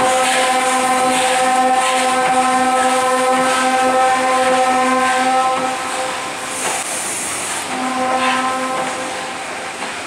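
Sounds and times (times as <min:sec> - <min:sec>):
steam whistle long note: 0:00.0 - 0:06.2, 0:07.7 - 0:09.3
hissing steam: 0:00.0 - 0:10.0.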